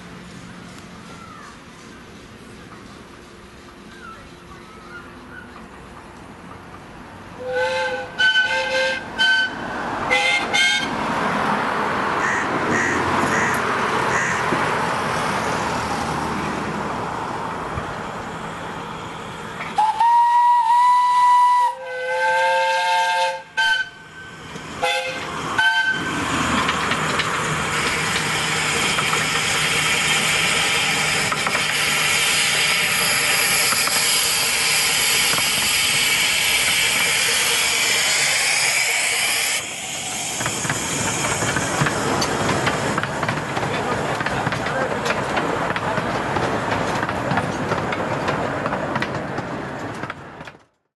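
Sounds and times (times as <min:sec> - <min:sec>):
steam locomotive whistle toots: 0:07.4 - 0:10.9, 0:19.7 - 0:26.2, 0:29.6 - 0:41.6
hiss of escaping steam: 0:27.7 - 0:43.1.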